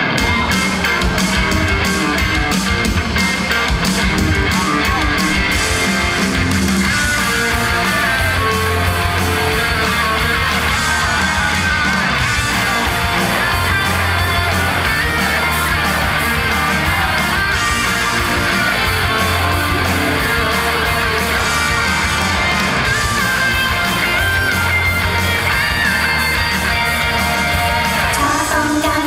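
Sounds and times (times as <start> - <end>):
steady drum beat: 0.0 - 28.5
electric guitar: 0.0 - 29.0
upbeat pop song: 0.0 - 29.0.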